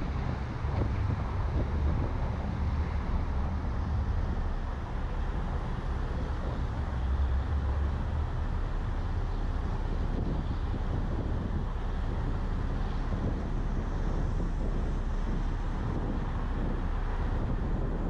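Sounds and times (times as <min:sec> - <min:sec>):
road and tyre noise: 0:00.0 - 0:18.0
wind buffeting microphone: 0:00.0 - 0:18.0.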